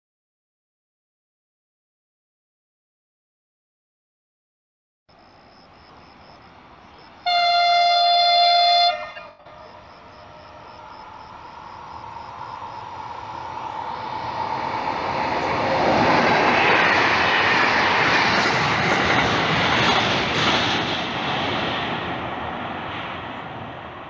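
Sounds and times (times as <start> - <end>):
freight train wheel and rail noise: 5.1 - 24.0.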